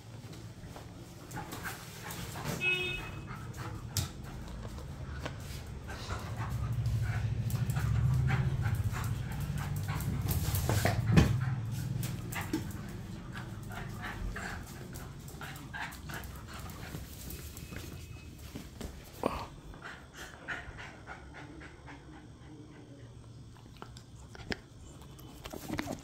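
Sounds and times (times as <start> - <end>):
puppy panting and whimpering: 5.7 - 17.9, 19.7 - 23.2.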